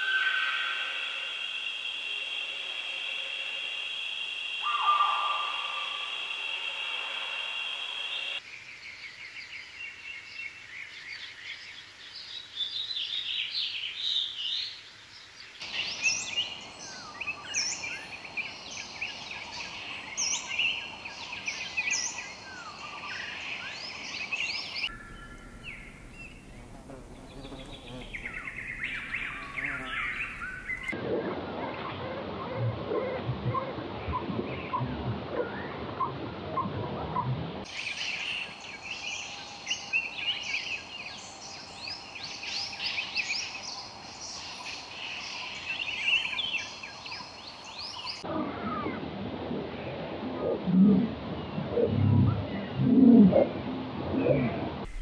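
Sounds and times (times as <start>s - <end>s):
forest ambience: 0.0s - 55.0s
birds chirping and calling: 4.6s - 5.9s, 15.6s - 31.0s.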